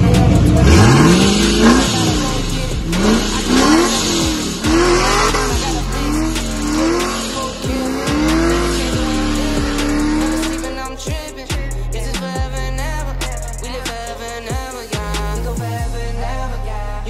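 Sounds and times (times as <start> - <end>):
car engine revving: 0.0 - 17.0
music: 0.0 - 17.0.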